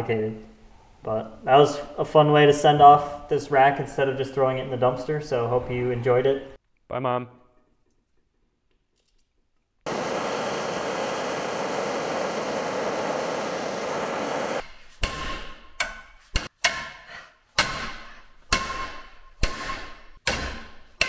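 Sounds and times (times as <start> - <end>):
gas torch flame hissing: 9.9 - 14.6.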